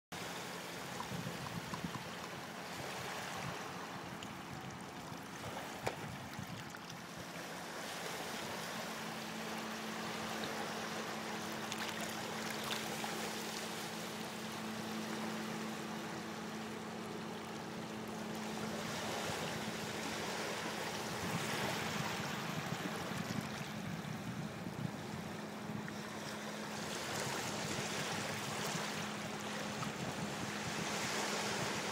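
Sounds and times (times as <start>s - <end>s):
waves lapping over rocks: 0.2s - 23.9s, 25.5s - 31.9s
faint steady hum: 0.2s - 31.9s.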